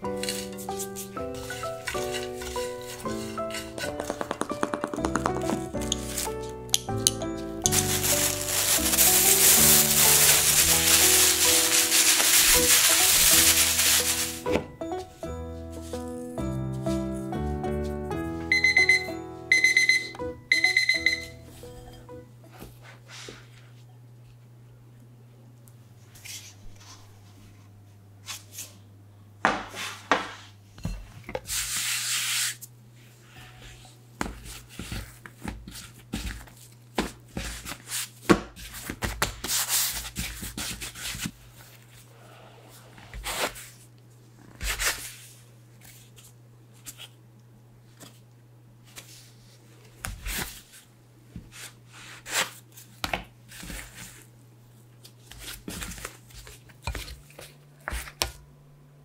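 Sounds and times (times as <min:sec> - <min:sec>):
hands handling dough on board: 0:00.2 - 0:06.4
scraper tapping board: 0:03.8 - 0:06.2.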